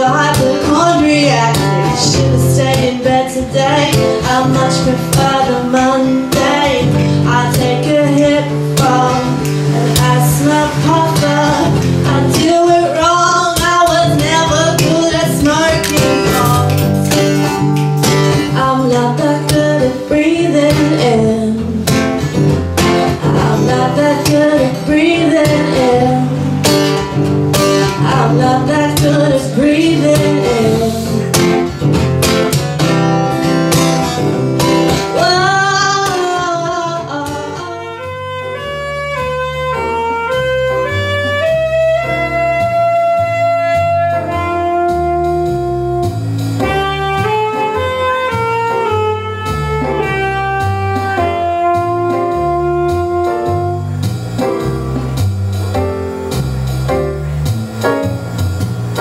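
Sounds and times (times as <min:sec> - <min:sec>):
woman singing: 0:00.0 - 0:16.9, 0:18.2 - 0:22.3, 0:22.9 - 0:27.0, 0:27.8 - 0:31.7, 0:34.9 - 0:38.8
strummed acoustic guitar: 0:00.0 - 0:41.6
saxophone playing slow notes: 0:37.3 - 0:59.0.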